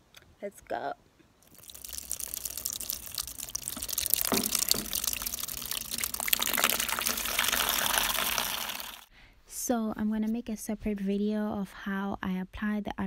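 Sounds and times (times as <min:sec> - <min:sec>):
water splashing into plastic basin: 0:01.4 - 0:09.1.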